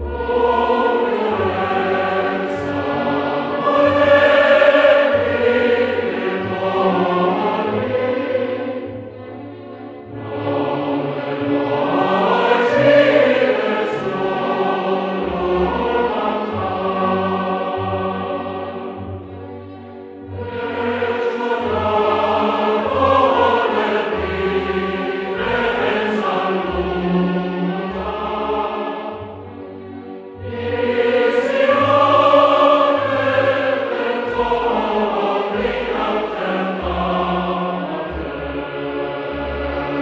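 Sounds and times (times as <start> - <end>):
choir-like sung notes: 0.0 - 40.0.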